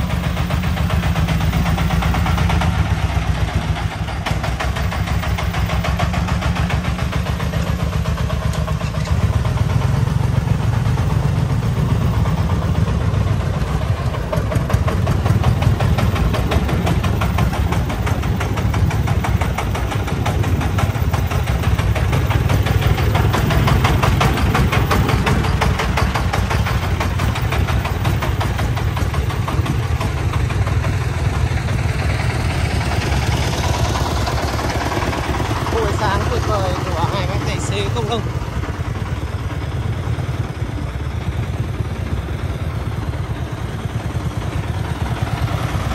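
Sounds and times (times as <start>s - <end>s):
diesel truck engine running: 0.0s - 45.9s.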